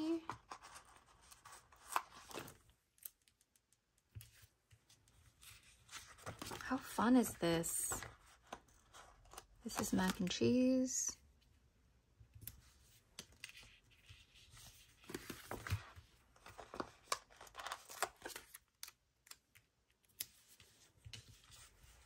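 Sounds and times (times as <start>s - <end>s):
page turning: 0.4s - 3.2s, 4.2s - 10.2s, 12.4s - 19.4s.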